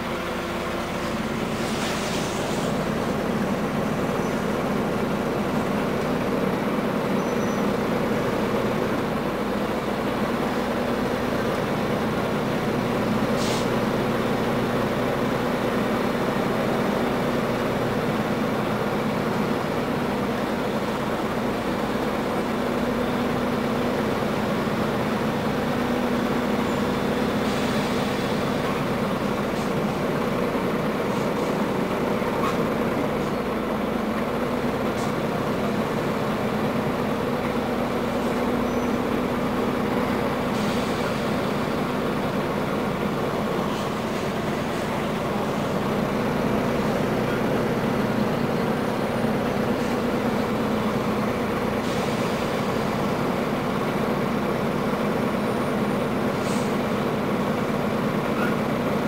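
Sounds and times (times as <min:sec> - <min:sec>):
bus diesel engine droning: 0:00.0 - 0:59.0
short air hiss: 0:01.6 - 0:02.8, 0:13.3 - 0:13.8, 0:40.5 - 0:41.4.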